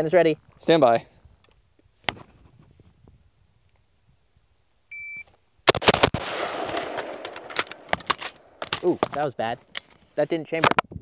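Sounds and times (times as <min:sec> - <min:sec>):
rifle firing fast shots: 0:05.7 - 0:08.8.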